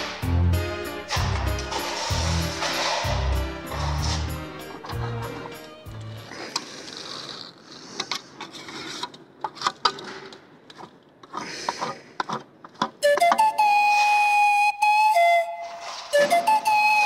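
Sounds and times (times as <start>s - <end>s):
whistle-like music: 0.0s - 5.9s, 13.0s - 17.0s
hand tool scraping stone: 1.1s - 5.1s.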